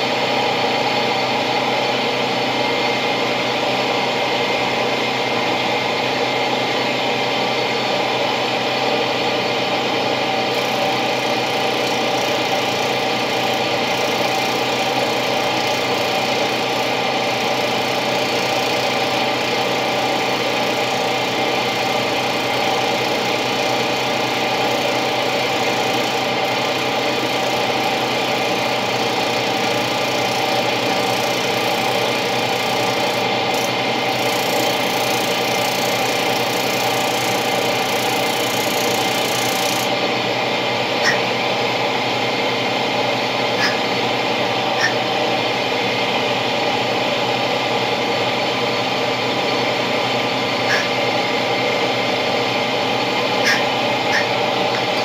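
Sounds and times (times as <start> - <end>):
motor humming: 9.9 - 46.7, 49.0 - 55.0.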